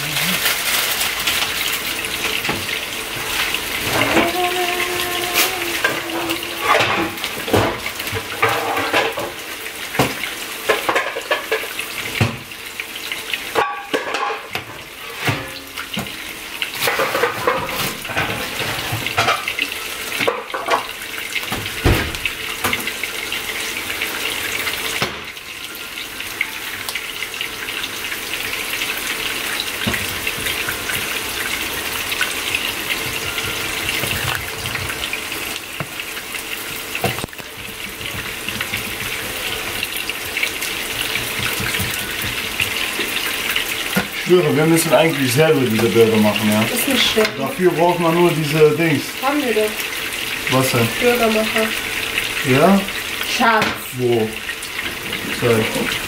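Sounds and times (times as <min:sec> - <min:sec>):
burger sizzling in frying pan: 0:00.0 - 0:56.0
packaging and utensils clattering: 0:00.1 - 0:01.8.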